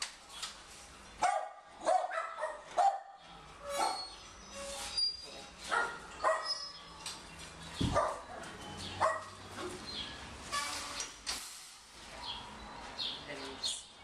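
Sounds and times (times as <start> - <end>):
dogs barking: 1.2 - 4.2, 5.6 - 6.8, 7.8 - 9.8, 12.1 - 12.6.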